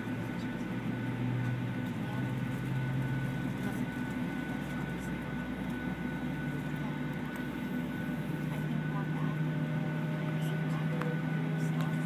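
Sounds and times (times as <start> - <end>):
aircraft cabin hum with faint whine: 0.0 - 12.0.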